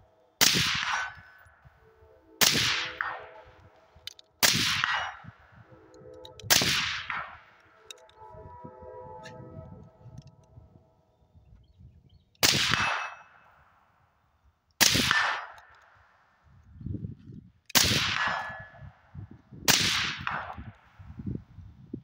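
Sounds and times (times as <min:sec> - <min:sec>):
suppressed rifle shots: 0:00.4 - 0:01.3, 0:02.4 - 0:03.4, 0:04.4 - 0:05.3, 0:12.4 - 0:13.2, 0:14.8 - 0:15.6, 0:17.7 - 0:18.6, 0:19.7 - 0:20.6.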